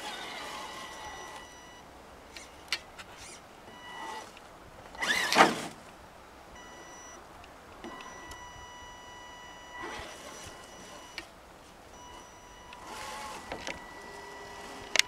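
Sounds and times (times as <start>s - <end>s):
small electric motor whine: 0.0s - 4.4s, 5.0s - 5.7s, 7.9s - 11.3s, 12.0s - 15.0s.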